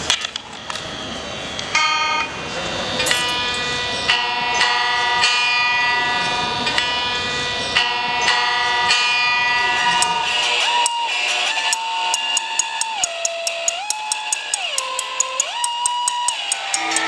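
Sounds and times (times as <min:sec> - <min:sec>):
electric guitar strings plucked: 0:03.0 - 0:11.2.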